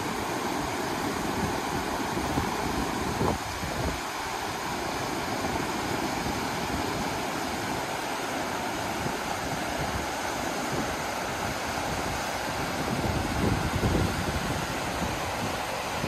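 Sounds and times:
river rushing over stones: 0.0 - 16.0.

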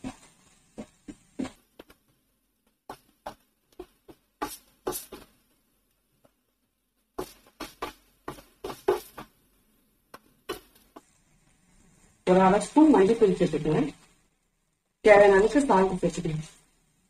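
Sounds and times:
wooden spatula scraping a frying pan: 7.2 - 9.3.

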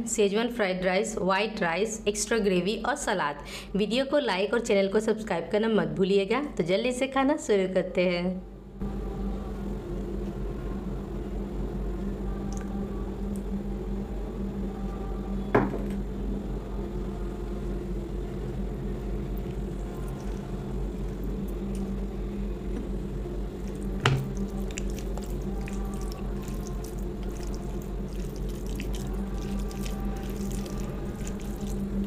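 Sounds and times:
low hum: 8.4 - 32.0
wet squishy eating: 19.3 - 22.1, 23.4 - 32.0.

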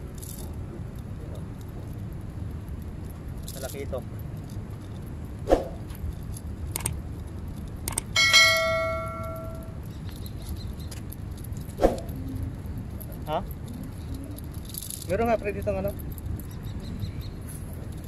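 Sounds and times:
low background rumble: 0.0 - 18.0
sharp clicks: 6.7 - 7.0, 7.6 - 8.2
bell chime: 8.2 - 9.8.

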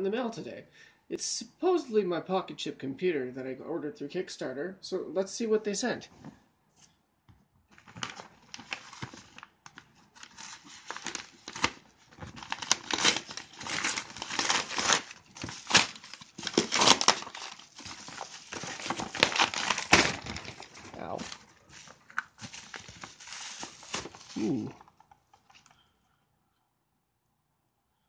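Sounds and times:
paper crinkling and ripping: 7.8 - 24.9.

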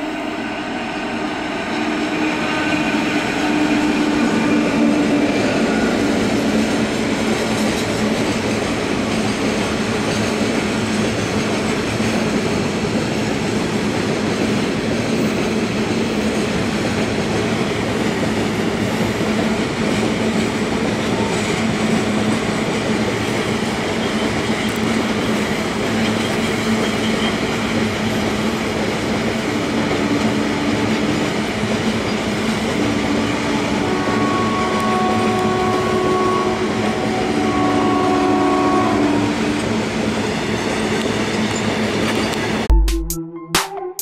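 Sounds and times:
train horn blasts: 0.0 - 6.8, 29.4 - 31.1, 32.8 - 39.7.

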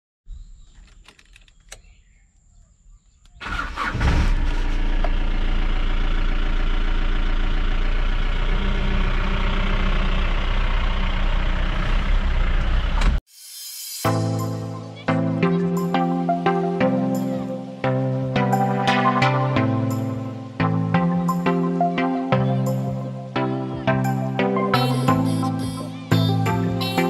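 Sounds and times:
car engine cranking and running: 3.4 - 13.2.

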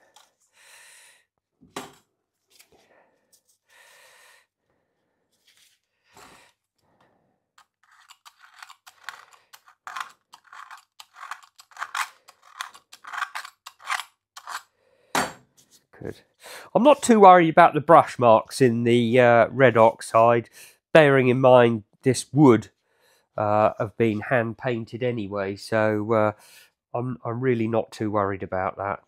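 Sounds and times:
scratchy bristle strokes: 7.6 - 13.8.

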